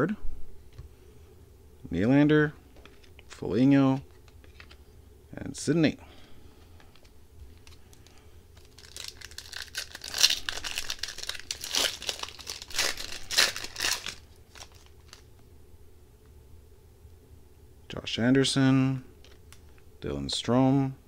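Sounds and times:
wrapper tearing and crinkling: 0:07.6 - 0:15.3.

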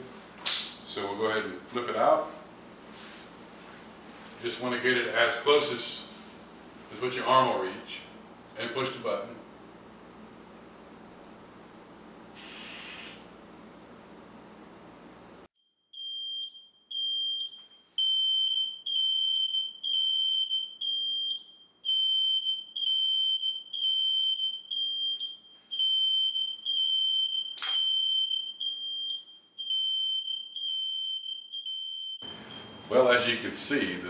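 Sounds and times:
sharp click: 0:00.4 - 0:00.9
aerosol spray hiss: 0:12.3 - 0:13.3
smoke alarm beeping: 0:12.4 - 0:13.3, 0:15.8 - 0:34.0.

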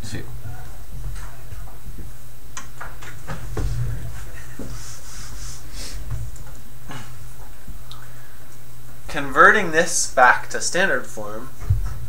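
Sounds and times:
steady low hum: 0:00.0 - 0:12.0
eraser rubbing on chalkboard: 0:04.6 - 0:06.1.

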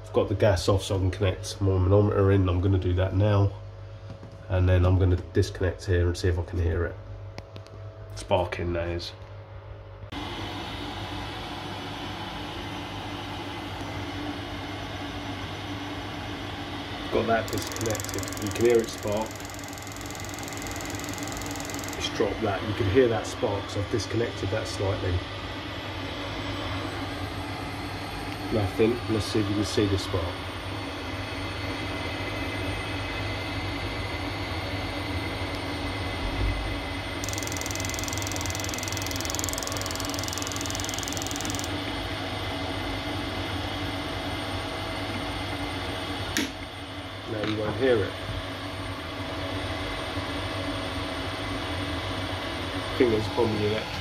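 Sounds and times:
boiler fan whirring hum: 0:00.0 - 0:54.0
fast high ticking: 0:17.5 - 0:22.2, 0:37.2 - 0:41.7.

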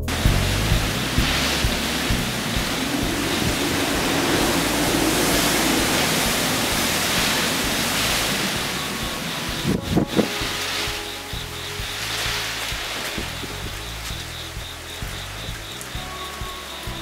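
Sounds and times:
storm wind roaring: 0:00.0 - 0:16.0.

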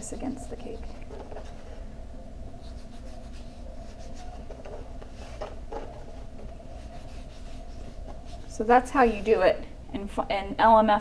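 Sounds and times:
steady low hum: 0:00.0 - 0:11.0
hands rubbing fondant: 0:02.5 - 0:09.6.

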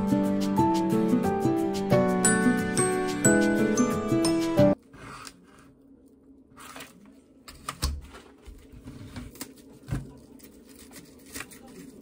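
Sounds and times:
background music: 0:00.0 - 0:04.8.

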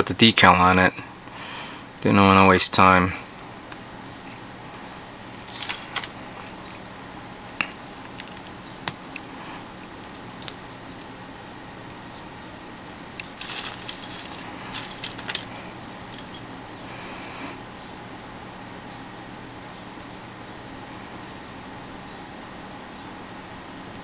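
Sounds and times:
plastic parts clicking and rattling: 0:07.6 - 0:09.4, 0:13.1 - 0:16.4.

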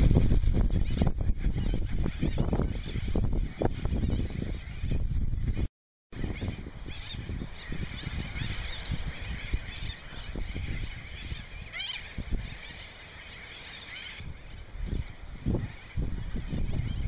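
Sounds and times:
seabirds calling: 0:00.0 - 0:17.0
loud rising bird call: 0:06.2 - 0:17.0.

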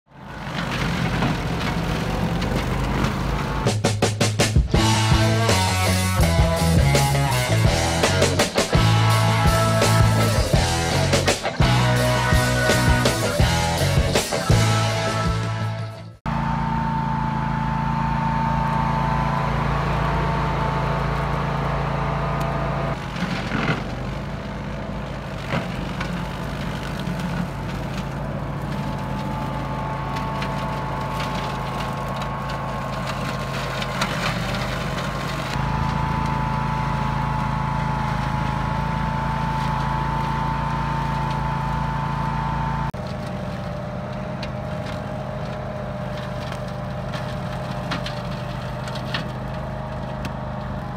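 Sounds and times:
ride-on mower engine running: 0:00.1 - 0:50.9
woody stems cracking: 0:25.2 - 0:36.4.

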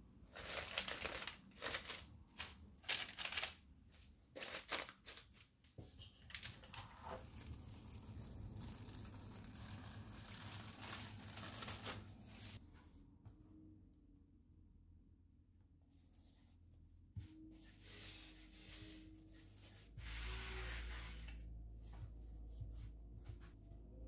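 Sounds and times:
cling film crinkling: 0:00.3 - 0:03.6, 0:04.4 - 0:05.5, 0:06.3 - 0:12.6.

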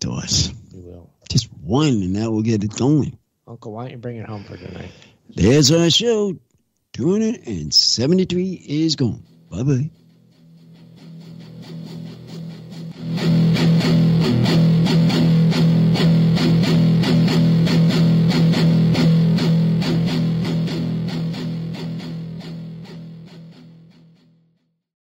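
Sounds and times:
guitar playing fast rhythm: 0:04.4 - 0:06.3, 0:07.0 - 0:24.4.

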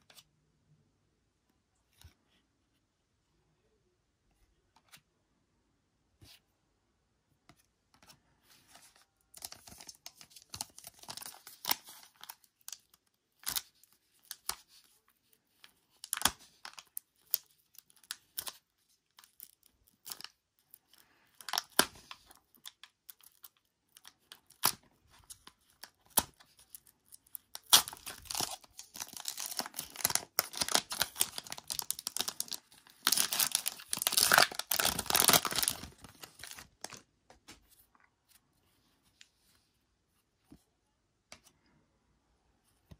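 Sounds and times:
foil wrapper tearing and crinkling: 0:26.0 - 0:37.0.

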